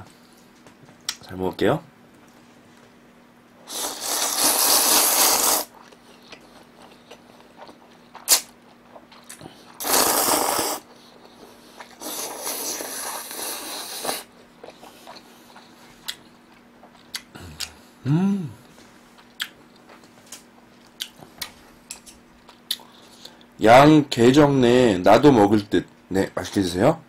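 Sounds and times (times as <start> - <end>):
noodles slurped loudly: 3.7 - 5.8, 9.7 - 10.9, 11.8 - 14.3.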